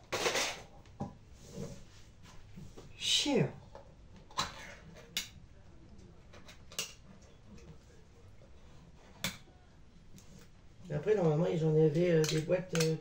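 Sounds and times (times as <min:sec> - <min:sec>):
kitchenware clicks: 0:12.2 - 0:13.0.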